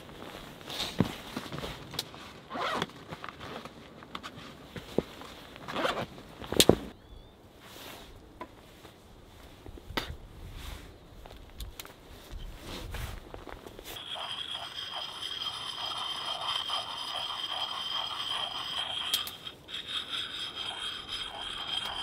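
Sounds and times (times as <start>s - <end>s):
zip rasping: 2.5s - 2.8s, 14.0s - 22.0s.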